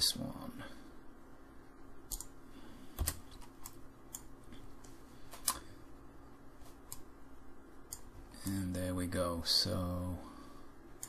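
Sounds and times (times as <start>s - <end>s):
faint steady hum: 0.0s - 11.0s
computer mouse clicks: 2.1s - 2.4s, 3.0s - 5.7s, 6.8s - 7.1s, 7.9s - 8.1s.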